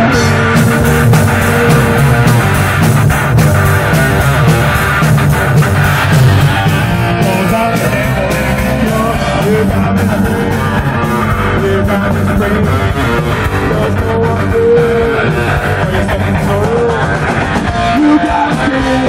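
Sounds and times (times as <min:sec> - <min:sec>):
bass guitar: 0:00.0 - 0:19.0
drum kit: 0:00.0 - 0:19.0
electric guitar: 0:00.0 - 0:19.0
person singing: 0:00.0 - 0:19.0.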